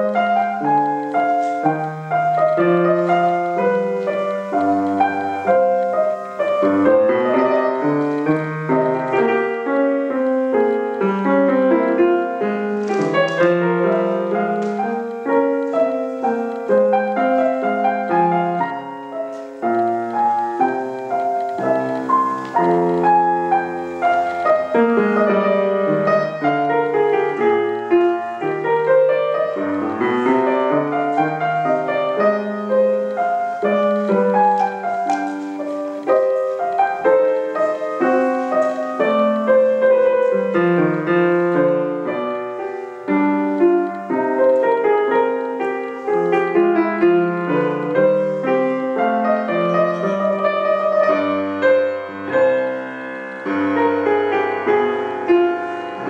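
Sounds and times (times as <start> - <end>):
grand piano playing: 0.0 - 56.0.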